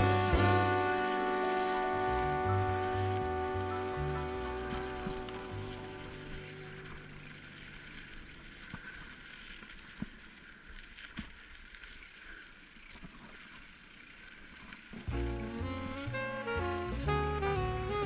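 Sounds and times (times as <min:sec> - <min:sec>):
music: 0:00.0 - 0:09.4, 0:15.1 - 0:18.0
bike tyres hissing on dirt: 0:00.0 - 0:18.0.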